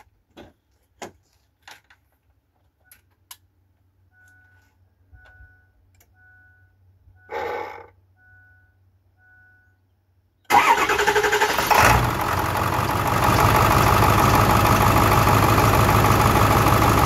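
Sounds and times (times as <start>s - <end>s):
two-tone warning chime beeping: 4.1s - 7.3s, 8.2s - 9.8s.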